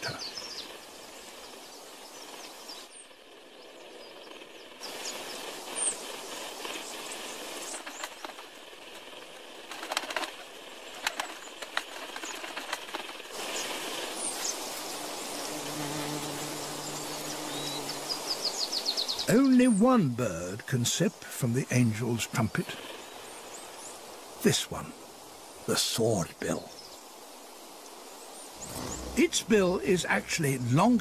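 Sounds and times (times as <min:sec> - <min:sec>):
hummingbird wings whirring: 0:00.0 - 0:19.3, 0:28.4 - 0:31.0
high bird chips and clicks: 0:04.2 - 0:14.6.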